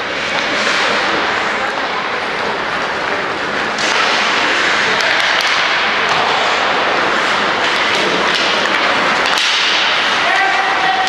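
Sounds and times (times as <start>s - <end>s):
crowd shouting and cheering: 9.3s - 11.0s.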